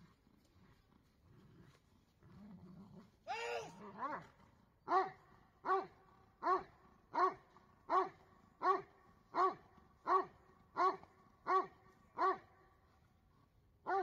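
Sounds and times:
dog barking: 0:04.9 - 0:12.5.

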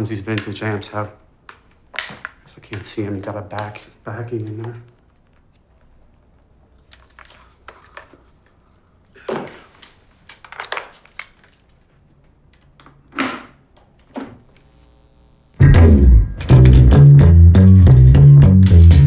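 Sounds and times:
faint amplifier buzz: 0:13.8 - 0:19.0
bass guitar through amplifier: 0:15.6 - 0:19.0
sharp thumps and clicks: 0:15.6 - 0:19.0.

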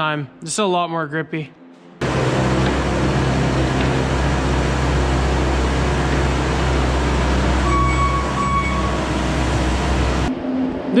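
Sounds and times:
diesel engine running: 0:02.0 - 0:10.3
short high beeps: 0:07.6 - 0:09.0.

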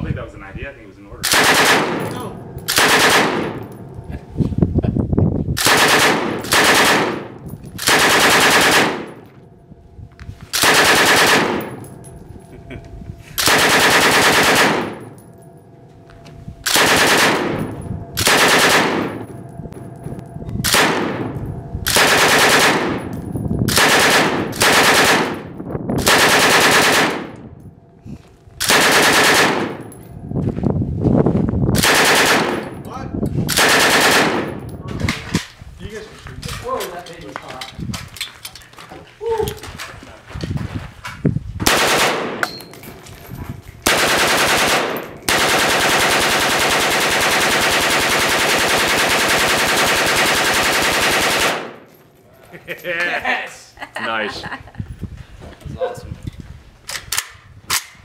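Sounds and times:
machine gun firing bursts: 0:01.2 - 0:03.6, 0:05.6 - 0:09.2, 0:10.6 - 0:11.8, 0:13.4 - 0:15.0, 0:16.7 - 0:19.2, 0:20.7 - 0:23.1, 0:23.7 - 0:27.4, 0:28.6 - 0:29.9, 0:31.8 - 0:32.7, 0:33.5 - 0:34.6, 0:41.6 - 0:42.4, 0:43.9 - 0:51.8.

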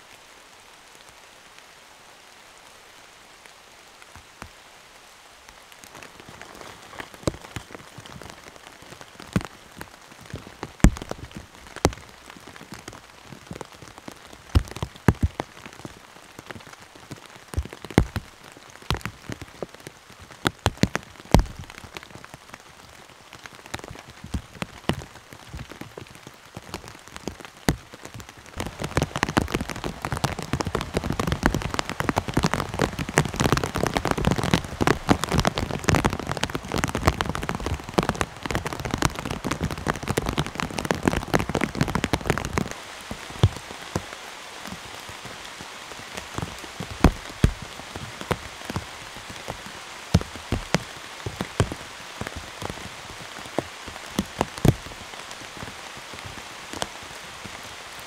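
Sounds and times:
heavy rain: 0:00.0 - 0:58.0.

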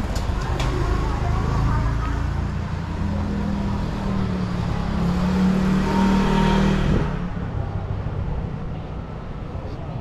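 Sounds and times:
vehicle engine passing by: 0:00.4 - 0:07.9.

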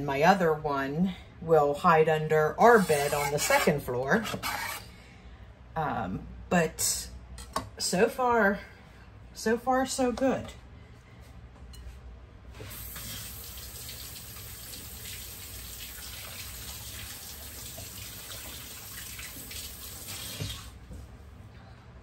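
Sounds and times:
tap water running into sink: 0:12.6 - 0:20.8.

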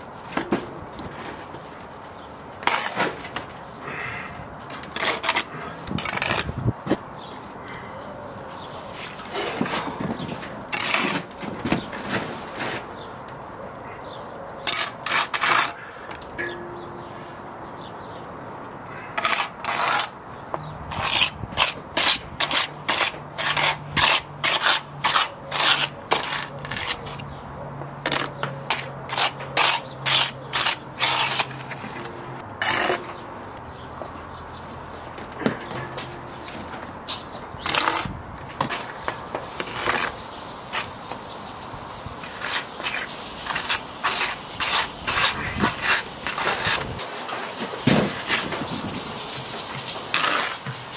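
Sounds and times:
trowel scraping mortar: 0:02.6 - 0:03.4, 0:04.9 - 0:07.0, 0:09.0 - 0:12.9, 0:14.6 - 0:15.9, 0:19.0 - 0:20.2, 0:20.9 - 0:27.3, 0:28.1 - 0:33.2, 0:37.6 - 0:41.0, 0:42.2 - 0:50.9.

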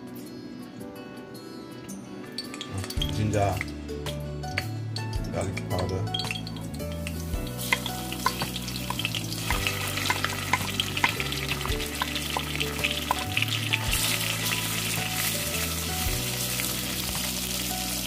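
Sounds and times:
spices frying in oil: 0:05.0 - 0:18.0.

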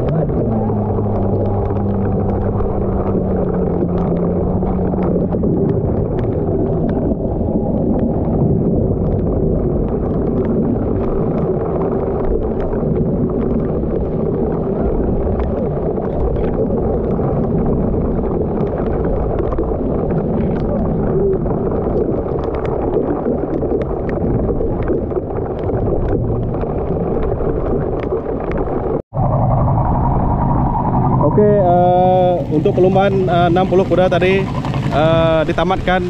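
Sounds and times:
low engine hum: 0:00.0 - 0:10.0, 0:29.0 - 0:36.0
wind buffeting microphone: 0:00.0 - 0:36.0.

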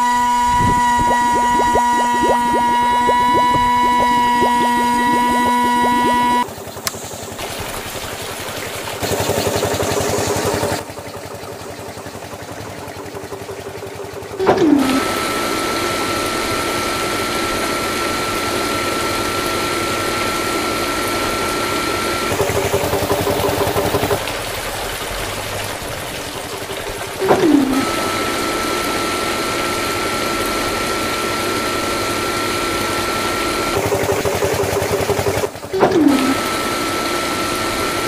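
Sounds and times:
small electric motors whirring: 0:00.0 - 0:06.5
thin steady whine: 0:00.0 - 0:07.3
water spraying: 0:00.0 - 0:38.0.

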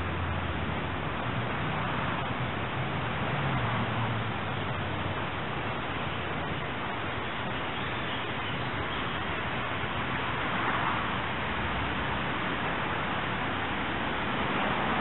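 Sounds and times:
outdoor ambient hiss: 0:00.0 - 0:15.0.

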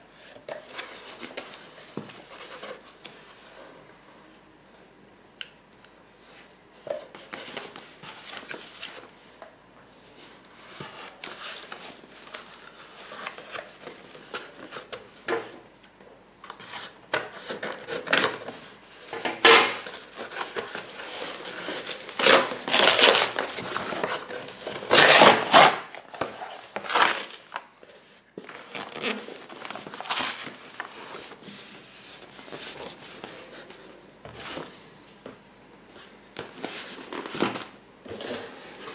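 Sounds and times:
cardboard and polystyrene rustling: 0:10.1 - 0:15.1, 0:16.6 - 0:34.8.

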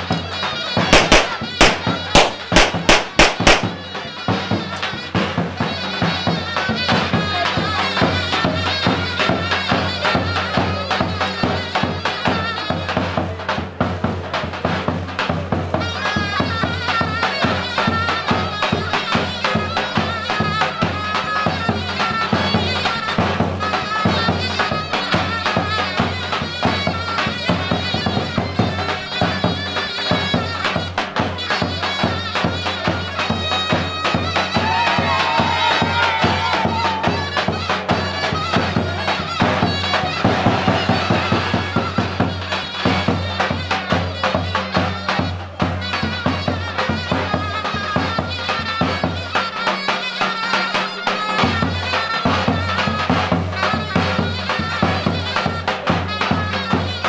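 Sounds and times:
reedy wind instrument melody: 0:00.0 - 0:13.0, 0:15.7 - 0:57.0
driving drumbeat: 0:00.0 - 0:50.3, 0:50.9 - 0:57.0.

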